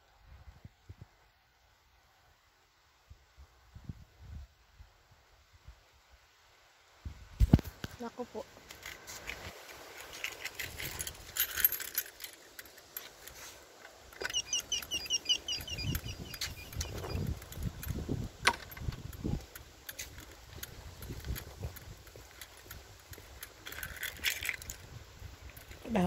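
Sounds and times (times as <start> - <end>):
footsteps: 8.6 - 14.2
small bird chirping: 14.2 - 18.2.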